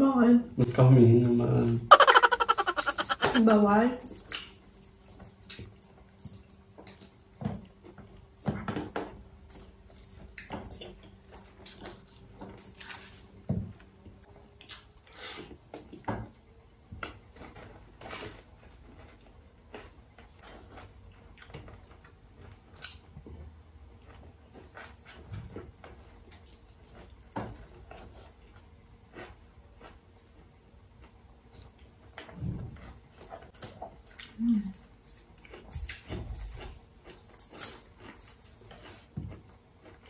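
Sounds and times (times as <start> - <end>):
people chewing and lip-smacking: 18.9 - 40.0.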